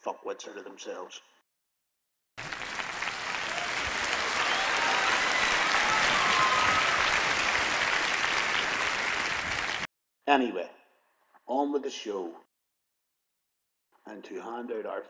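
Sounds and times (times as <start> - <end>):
large audience applauding: 2.4 - 9.9.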